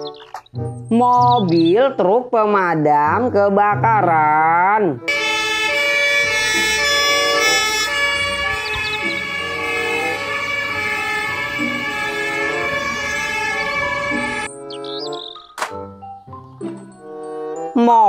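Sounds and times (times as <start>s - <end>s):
fire engine warning horn tones: 5.1s - 14.6s.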